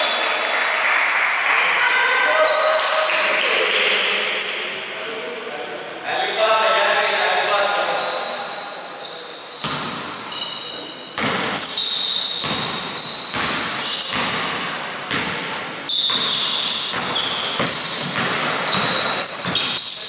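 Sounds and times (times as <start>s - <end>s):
high squeaks: 7.0s - 20.0s
basketball bouncing on wooden floor: 11.2s - 11.7s, 12.4s - 19.9s.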